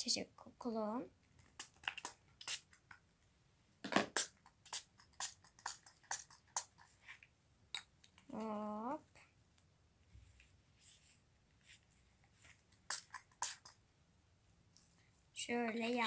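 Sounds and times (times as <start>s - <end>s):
slime squish: 1.4s - 2.6s.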